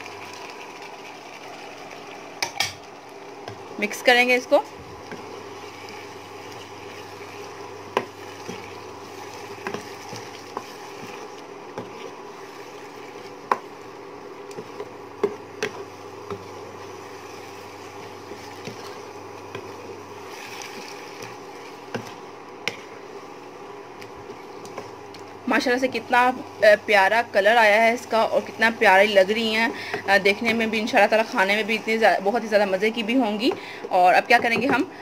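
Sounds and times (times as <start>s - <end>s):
steady hum: 0.0s - 35.0s
spatula stirring food in wok: 4.6s - 26.6s.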